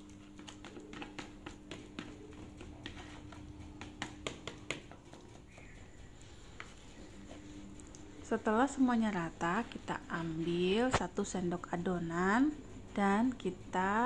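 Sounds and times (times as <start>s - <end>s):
steady low hum: 0.0s - 14.0s
spoon tapping plastic bowl: 0.4s - 5.2s.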